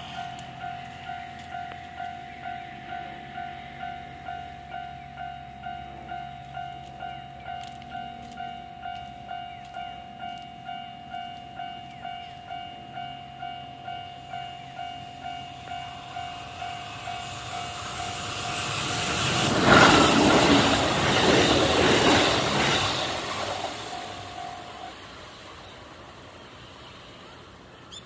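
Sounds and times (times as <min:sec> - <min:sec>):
level crossing warning bell: 0:00.0 - 0:19.2
train passing: 0:00.0 - 0:28.0.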